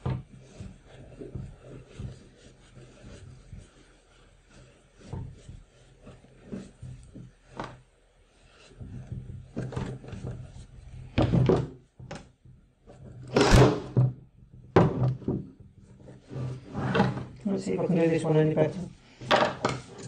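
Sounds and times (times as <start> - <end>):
dull thunks on wooden table: 11.2 - 11.8, 13.3 - 14.2, 14.8 - 15.5.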